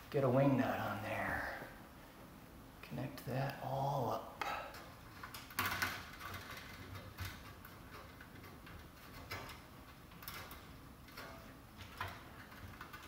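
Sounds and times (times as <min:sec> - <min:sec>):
wire ends clicking and rustling: 0:04.4 - 0:13.0.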